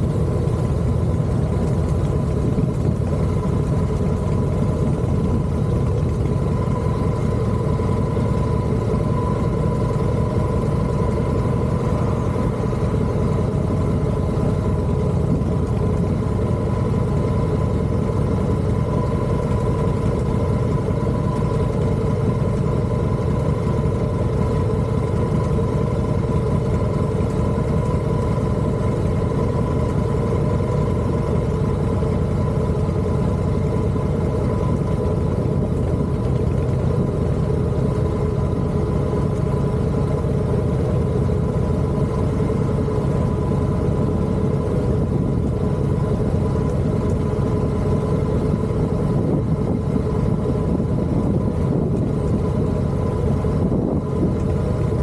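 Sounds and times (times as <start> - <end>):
vehicle running rumble and whine: 0.0 - 55.0.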